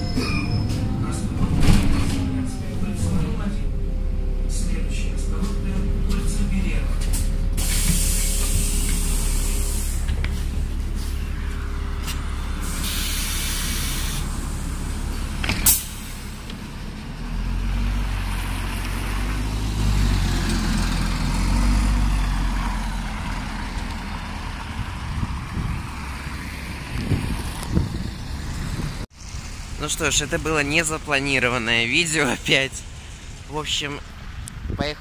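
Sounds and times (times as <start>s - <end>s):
bus engine rumbling: 0.0s - 35.0s
compressed air hissing: 7.6s - 10.1s, 12.6s - 14.3s.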